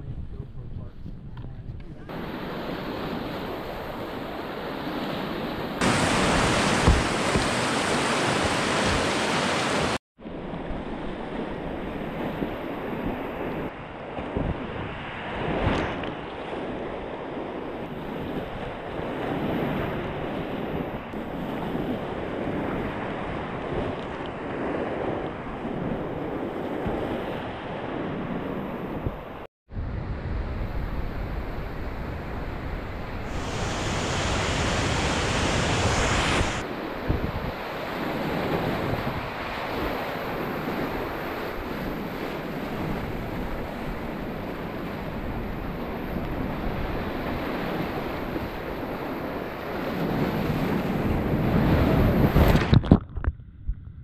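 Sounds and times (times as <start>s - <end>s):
water splashing over boat: 5.8s - 10.0s
whitewater rapids roaring: 5.8s - 10.0s, 33.3s - 36.6s.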